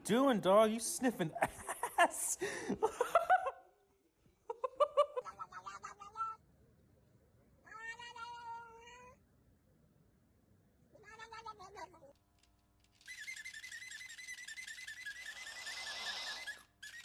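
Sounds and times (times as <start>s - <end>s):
cats meowing: 7.7s - 9.2s.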